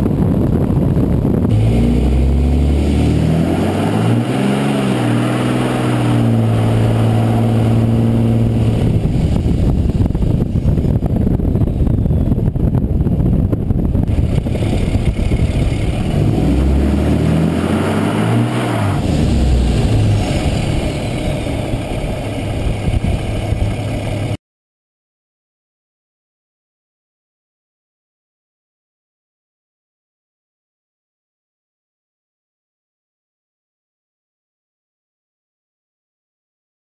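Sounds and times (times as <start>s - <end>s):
truck engine revving high: 1.0s - 10.9s, 14.0s - 24.4s.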